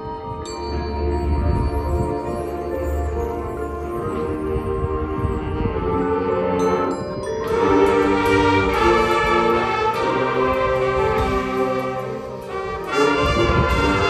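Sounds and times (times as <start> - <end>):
high bell-like notes: 0.0 - 13.6
marching band brass chords: 4.0 - 14.0.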